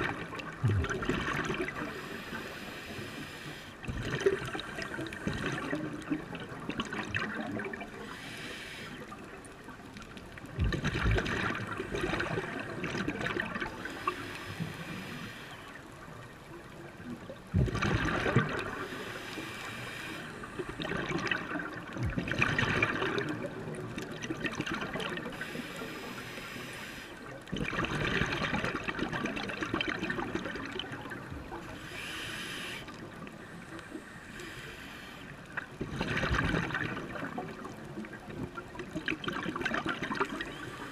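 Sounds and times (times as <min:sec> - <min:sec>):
gurgling exhaled bubbles: 0:00.0 - 0:02.4, 0:03.8 - 0:08.2, 0:10.4 - 0:14.2, 0:17.2 - 0:19.2, 0:20.3 - 0:25.5, 0:27.5 - 0:31.7, 0:35.6 - 0:40.9
regulator hiss: 0:08.1 - 0:09.0, 0:13.9 - 0:15.8, 0:18.9 - 0:20.5, 0:25.4 - 0:27.2, 0:31.8 - 0:32.9, 0:34.0 - 0:35.3.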